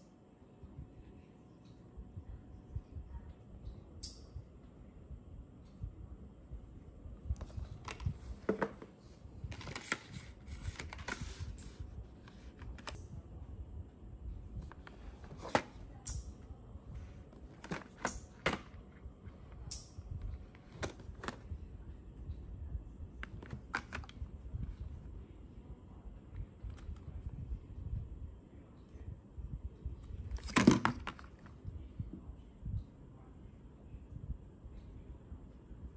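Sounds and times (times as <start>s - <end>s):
packaging tapping and rustling: 7.4s - 13.0s, 23.2s - 24.2s, 30.4s - 31.5s.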